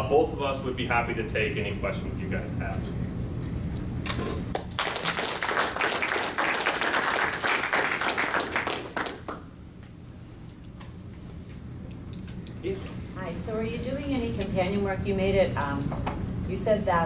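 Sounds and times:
audience applauding: 4.5 - 9.5.

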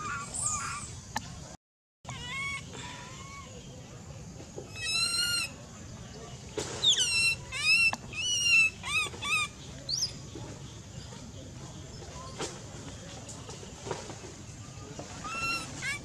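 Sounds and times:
baby monkey crying: 2.1 - 3.5, 4.8 - 5.5, 6.8 - 9.5, 15.2 - 16.0.

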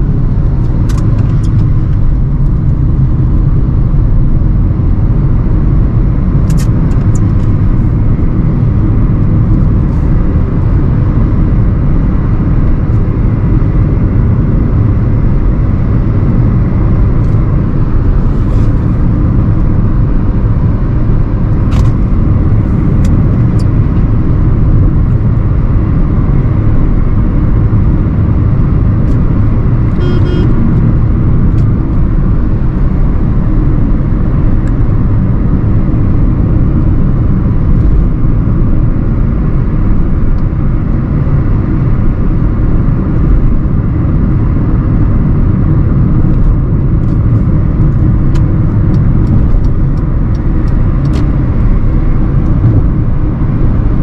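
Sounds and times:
car engine rumble: 0.0 - 54.0
road noise: 0.0 - 54.0
short high-pitched sound: 30.0 - 30.8.

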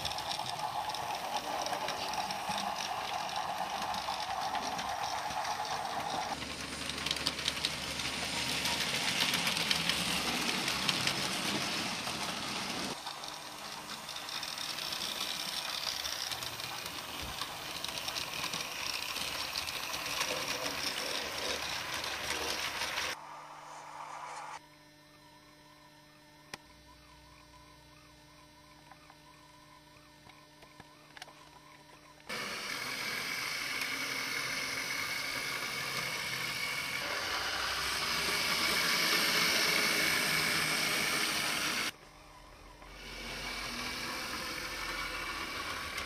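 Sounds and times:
small electric motors whirring: 0.0 - 46.0
steady whine: 0.0 - 46.0.

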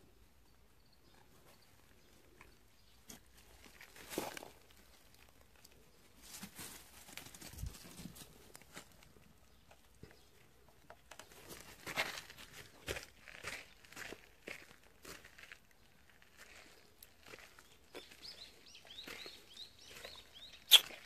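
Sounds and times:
footsteps crunching on gravel: 3.6 - 4.9, 11.4 - 21.0.

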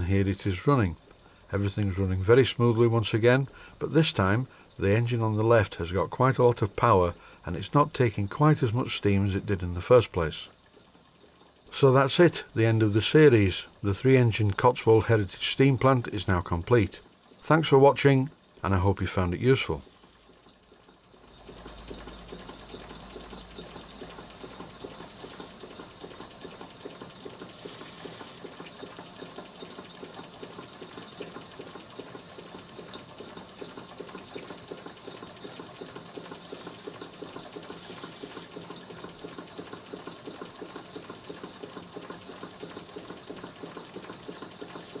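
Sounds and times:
model steam engines beating: 0.0 - 45.0
steam hiss: 19.8 - 20.4, 24.4 - 29.1, 35.5 - 39.1, 43.0 - 45.0.

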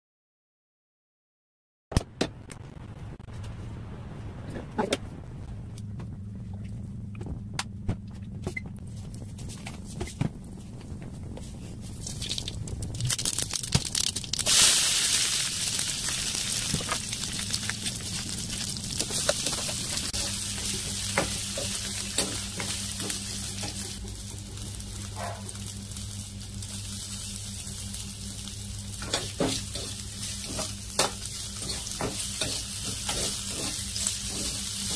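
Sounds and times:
low steady hum: 2.3 - 34.9
onions sizzling in hot oil: 13.1 - 34.9.

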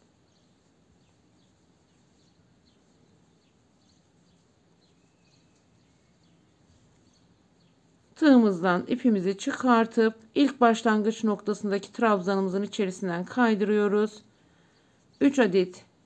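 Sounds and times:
faint high chirps: 0.0 - 7.9.

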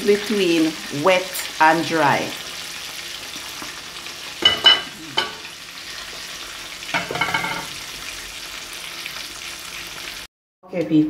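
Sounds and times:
pot lid clanking on pot: 7.0 - 7.7.

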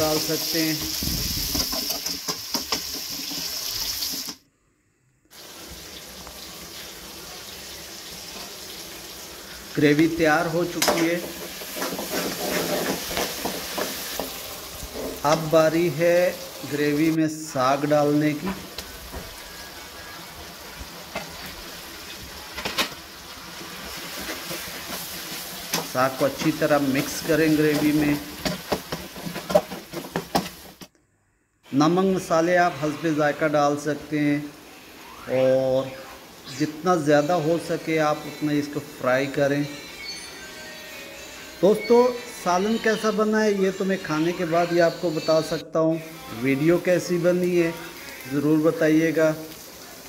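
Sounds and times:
pan hissing on gas flame: 0.0 - 4.4, 5.3 - 17.2, 18.1 - 30.9
vegetables sizzling in oil: 0.0 - 4.4, 5.3 - 30.9, 32.4 - 45.4, 46.0 - 50.0
spatula scraping pan: 10.9 - 15.4, 23.5 - 30.8.

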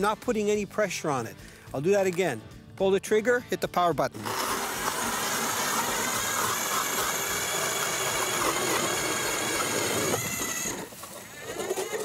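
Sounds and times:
auger blades grinding ice: 4.1 - 12.0
electric motor whine: 4.2 - 12.0.

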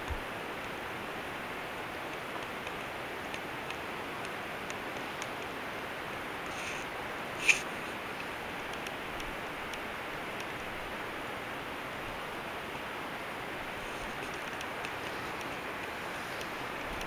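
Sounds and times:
steady outdoor hiss: 0.0 - 17.0
faint ticks: 2.0 - 5.6, 6.4 - 10.6, 13.8 - 17.0.

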